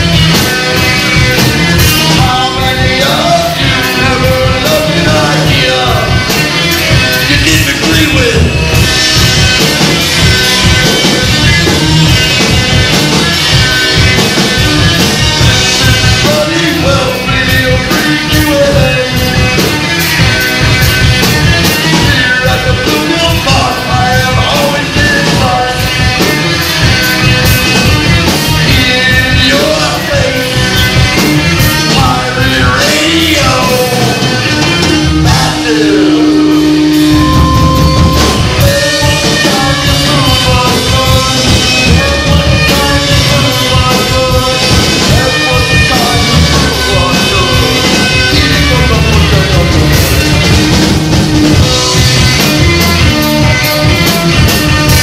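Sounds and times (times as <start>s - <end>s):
person singing: 0.0s - 8.6s, 15.4s - 20.0s, 21.6s - 50.8s
rock band playing live: 0.0s - 55.0s.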